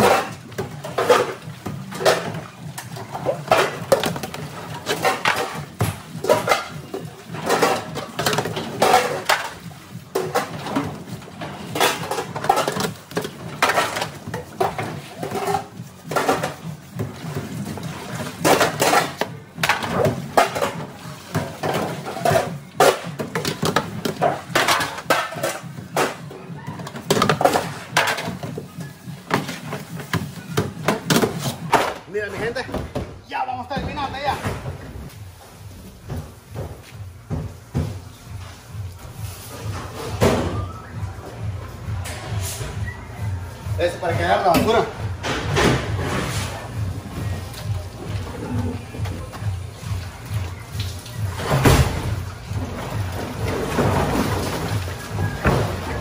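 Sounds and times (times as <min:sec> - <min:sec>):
steel pans clattering and scraping: 0:00.0 - 0:33.1.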